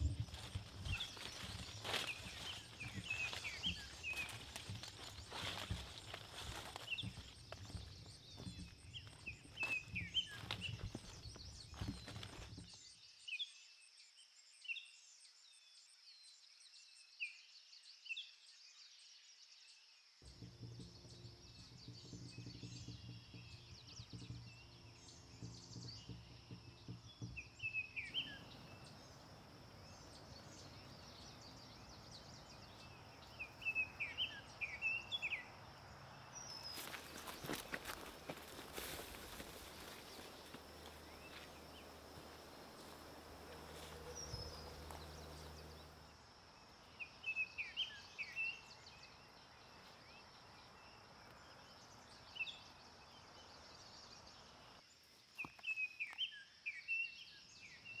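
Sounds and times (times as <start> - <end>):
footsteps rustling through undergrowth: 0.0 - 12.7, 28.2 - 35.5, 36.2 - 46.1
small birds chirping: 0.0 - 13.0, 20.3 - 58.0
low steady hum: 20.3 - 46.2.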